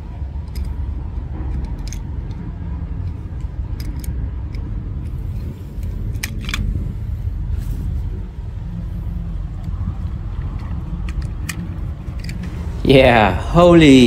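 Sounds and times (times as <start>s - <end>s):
car engine rumbling: 0.0s - 14.0s.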